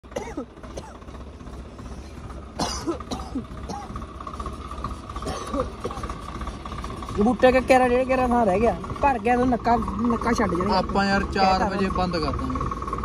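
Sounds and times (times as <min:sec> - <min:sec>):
tractor engine humming: 0:00.0 - 0:13.0
cough-like burst: 0:00.1 - 0:01.0, 0:02.6 - 0:04.0, 0:05.2 - 0:06.1.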